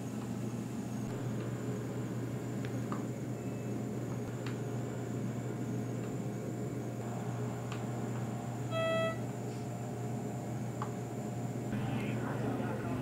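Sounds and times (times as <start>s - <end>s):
low room hum: 0.0s - 13.0s
short electronic beep: 8.7s - 9.2s.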